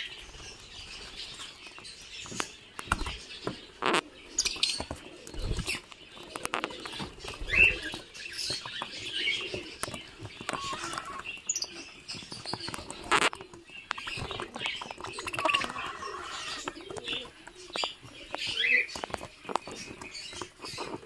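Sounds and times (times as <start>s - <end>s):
cockatiels chirping: 0.0s - 21.0s
small clicks and scratches: 0.4s - 21.0s.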